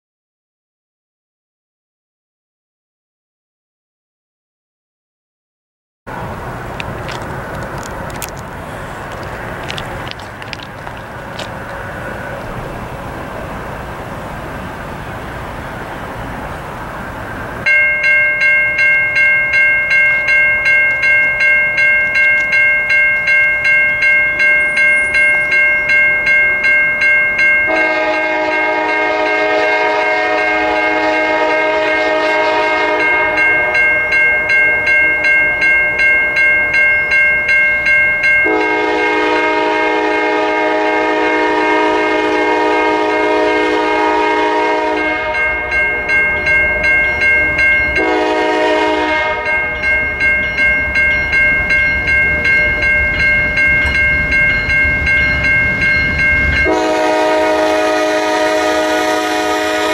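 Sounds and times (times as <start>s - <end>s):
freight train passing: 6.1s - 59.9s
train bell ringing: 17.6s - 59.9s
locomotive horn blasts: 27.7s - 34.6s, 38.4s - 47.3s, 47.9s - 50.0s, 56.2s - 59.9s.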